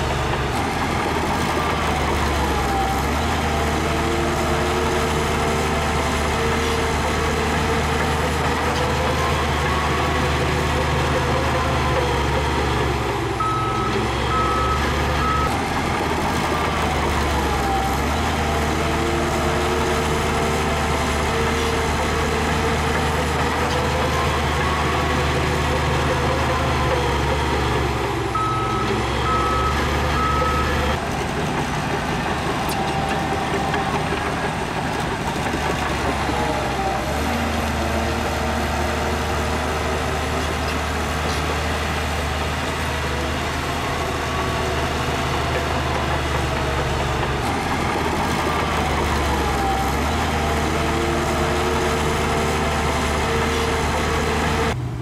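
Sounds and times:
diesel machinery running: 0.0s - 55.0s
reversing alarm beeps: 8.1s - 18.4s, 23.1s - 31.0s.

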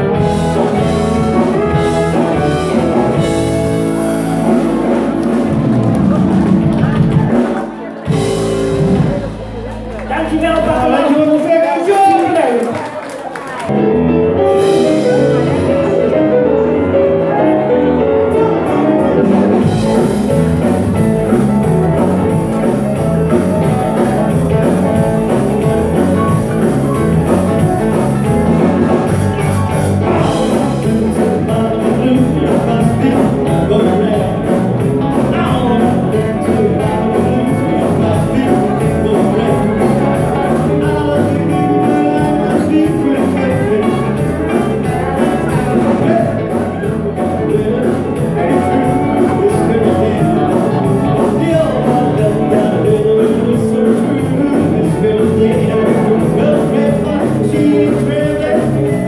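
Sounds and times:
pedal steel guitar: 0.0s - 10.1s
drum kit beat: 0.0s - 10.7s, 18.4s - 59.0s
live band with vocals: 0.0s - 59.0s.

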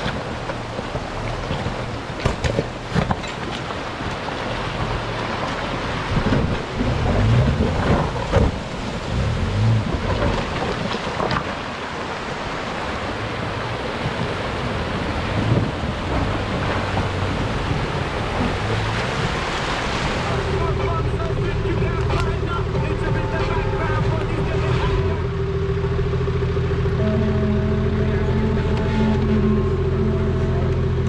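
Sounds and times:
tyres splashing and knocking on stones: 0.0s - 12.4s
river rushing over rocks: 0.0s - 24.6s
vehicle engine: 0.0s - 31.0s
wind buffeting microphone: 6.0s - 20.3s.

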